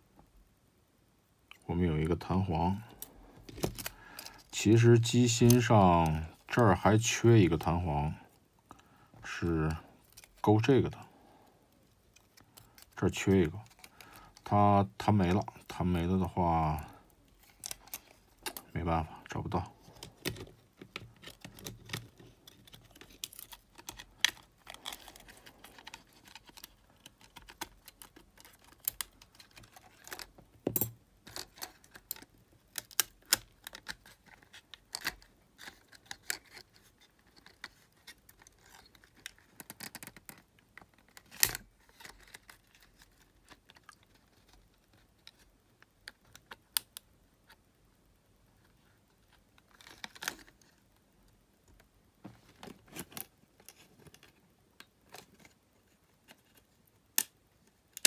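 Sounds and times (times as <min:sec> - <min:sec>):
plastic and metal parts clicking: 0:19.9 - 0:47.0.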